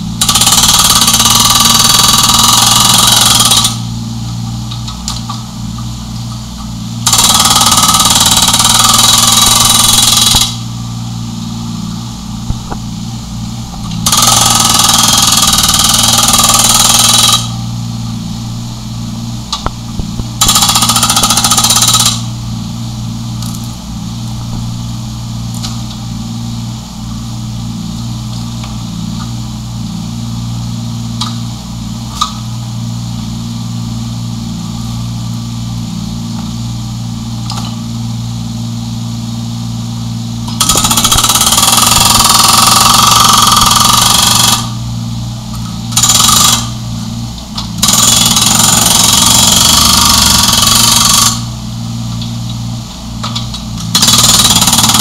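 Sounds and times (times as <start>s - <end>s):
diesel engine running: 0.0s - 55.0s
hydraulic breaker hammering concrete: 0.1s - 3.9s, 7.0s - 10.7s, 13.7s - 17.6s, 19.5s - 22.4s, 40.4s - 44.9s, 45.6s - 46.8s, 47.6s - 51.6s, 53.2s - 55.0s.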